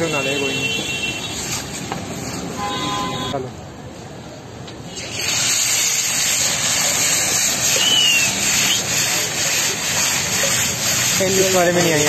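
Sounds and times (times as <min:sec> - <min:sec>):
sauce sizzling in hot oil: 0:04.9 - 0:12.0.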